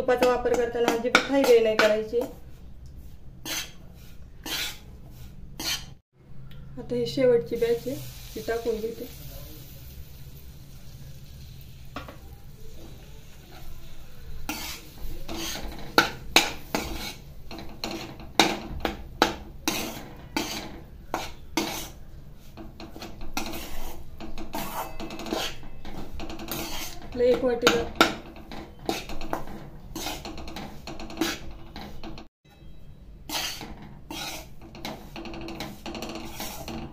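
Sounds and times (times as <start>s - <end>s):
metal spatula scraping metal pan: 3.4s - 6.0s, 12.8s - 36.9s.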